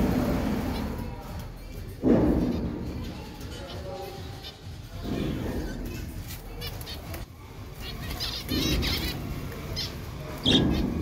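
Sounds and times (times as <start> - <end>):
finches chirping and calling: 2.5 - 11.0.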